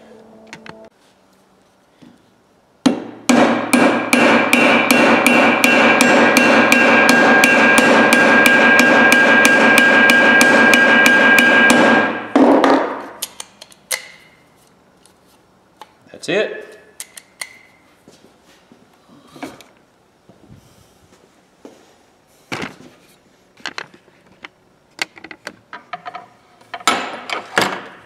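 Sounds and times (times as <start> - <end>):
hammer striking steel: 2.9 - 13.2.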